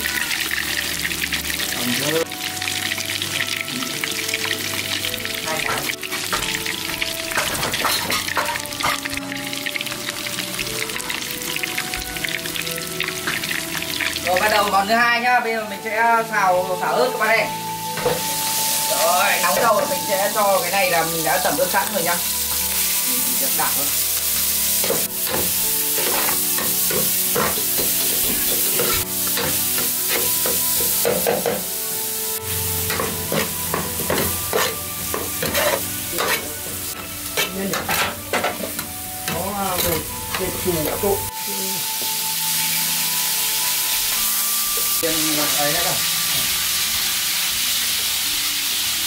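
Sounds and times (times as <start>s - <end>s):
meat sizzling in hot oil: 0.0s - 49.0s
spatula scraping a pan: 32.9s - 38.8s.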